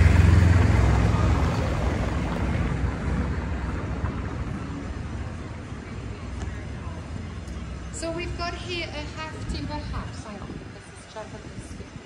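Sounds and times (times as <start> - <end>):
car engine hum: 0.0 - 8.6
tyres on cobblestones: 0.0 - 12.0.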